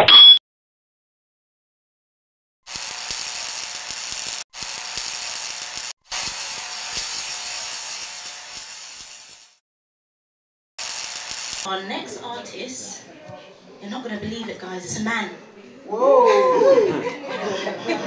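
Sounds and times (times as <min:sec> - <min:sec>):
hissing crackling noise: 0:10.8 - 0:11.7.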